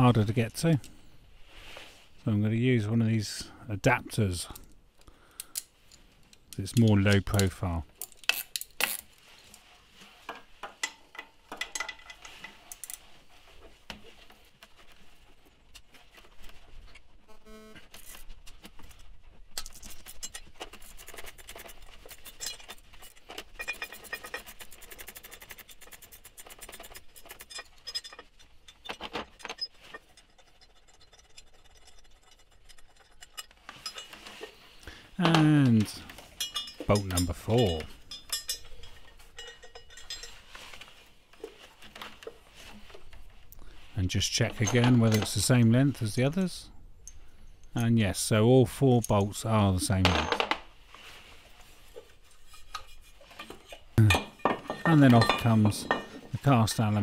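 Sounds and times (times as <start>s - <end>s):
metallic clinks of tools: 36.1s - 40.6s.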